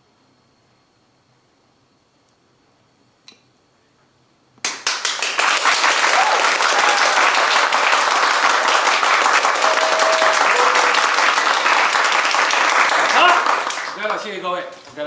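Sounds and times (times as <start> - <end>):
crowd applauding: 4.6 - 14.8.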